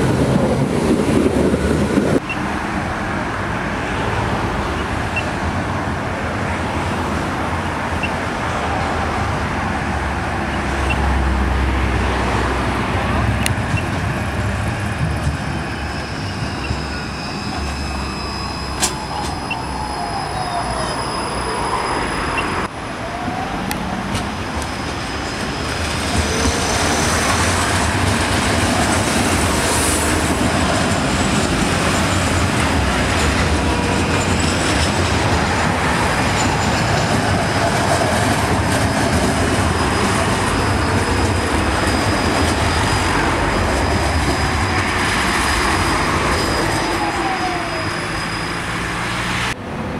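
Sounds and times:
tram wheels on rails: 0.0s - 49.9s
high wheel squeal: 14.8s - 49.6s.

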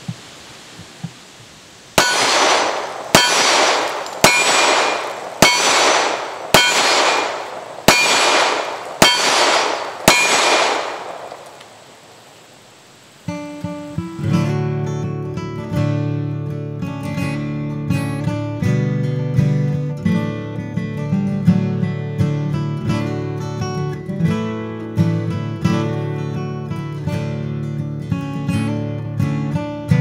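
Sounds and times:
bullets clanging on steel target: 2.0s - 11.6s
acoustic guitar music: 13.3s - 30.0s.

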